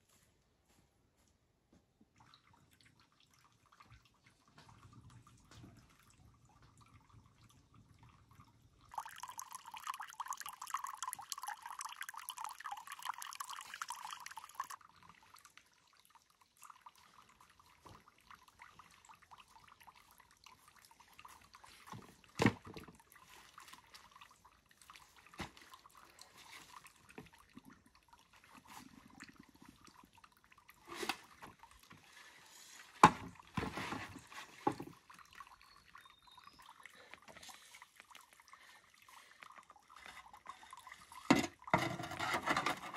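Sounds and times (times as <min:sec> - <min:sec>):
water trickling: 0:02.1 - 0:42.9
water splashing into bucket: 0:08.9 - 0:36.1.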